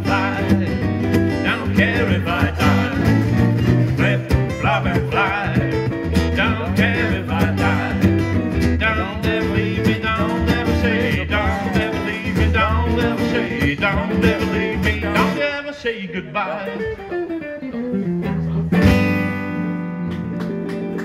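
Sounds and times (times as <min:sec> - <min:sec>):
acoustic guitar strumming: 0:00.0 - 0:21.0
electric guitar lead lines: 0:16.2 - 0:21.0.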